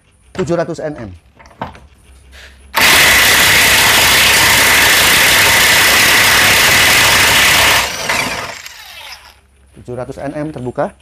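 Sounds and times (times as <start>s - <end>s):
impact wrench hammering: 2.8s - 9.2s.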